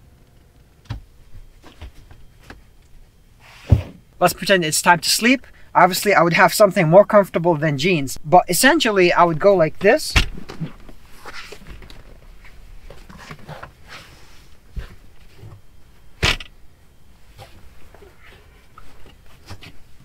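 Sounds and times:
clothes and bedding rustling: 1.1 - 2.8, 9.4 - 16.4, 17.1 - 20.0.

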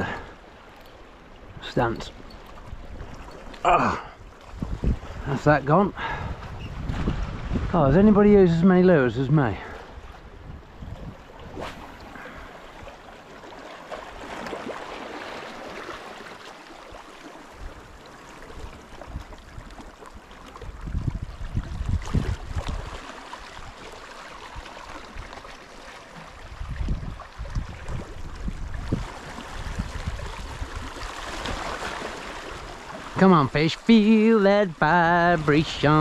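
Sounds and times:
sea water lapping: 0.0 - 36.0
wind gusts on microphone: 3.9 - 13.0, 20.6 - 23.8, 26.4 - 34.0.

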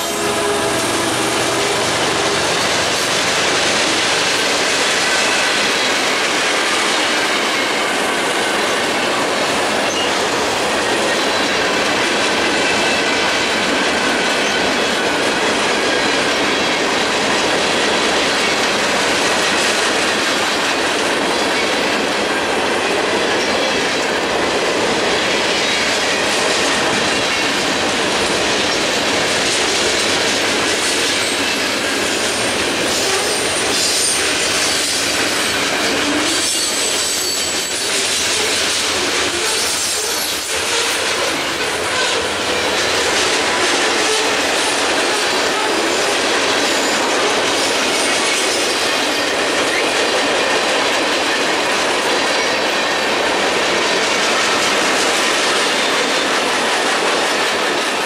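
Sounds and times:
train wheels rumbling on rails: 0.0 - 58.0
high wheel squeal: 36.2 - 38.6.

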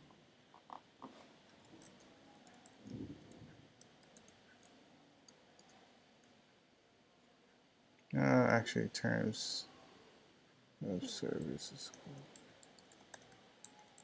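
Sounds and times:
computer keys typing: 1.5 - 5.8, 11.2 - 14.0.

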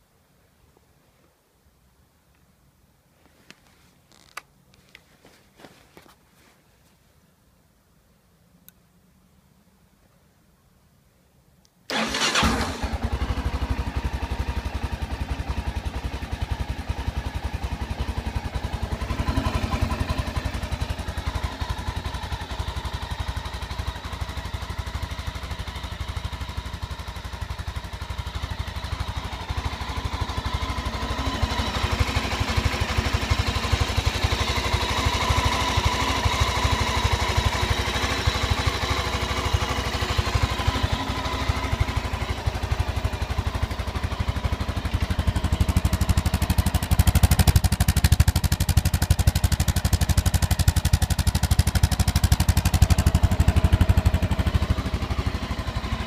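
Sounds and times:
motorcycle engine idling: 11.9 - 56.0.

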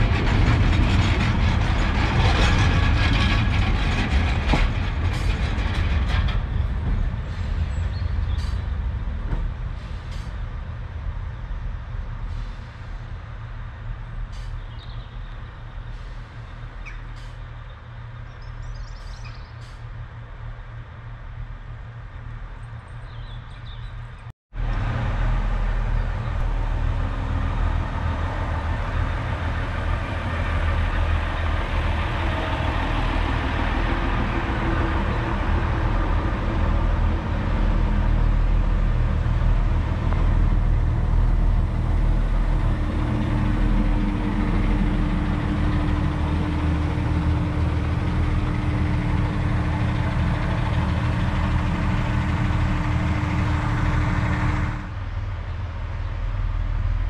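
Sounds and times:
diesel engines idling: 24.6 - 57.0.

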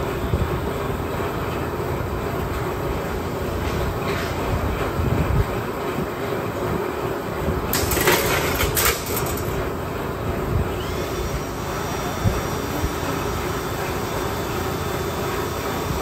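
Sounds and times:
workshop rumble: 0.0 - 16.0
shear cutting sheet steel: 7.7 - 9.6.

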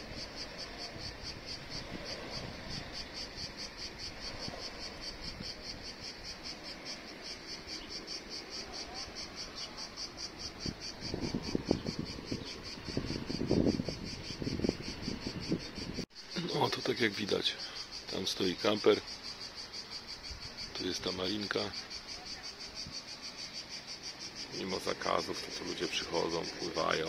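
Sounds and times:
cricket chirping: 0.0 - 27.0.

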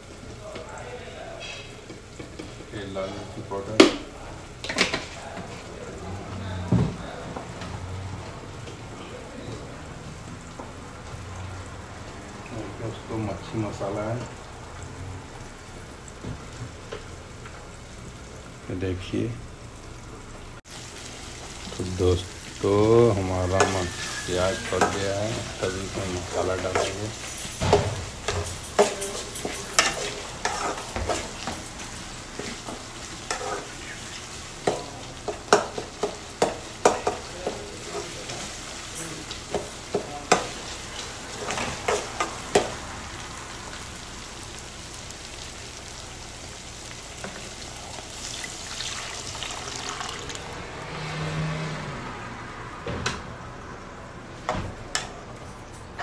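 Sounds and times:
food sizzling in a pan: 0.0 - 51.9
metal spatula scraping a pan: 23.4 - 37.2.

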